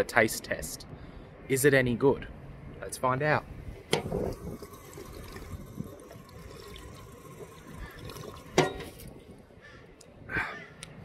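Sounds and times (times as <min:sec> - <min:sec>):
drinking fountain water trickling: 0:03.9 - 0:09.5.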